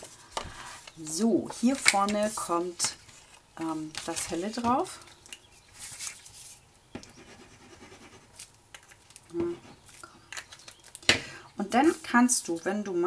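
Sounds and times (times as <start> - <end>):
paper rustling and scraping: 0.0 - 6.6.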